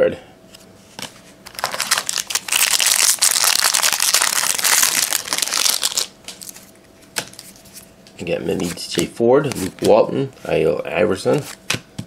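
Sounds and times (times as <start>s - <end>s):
cards being handled: 0.9s - 7.9s
card pack wrapper crinkling: 1.5s - 6.7s.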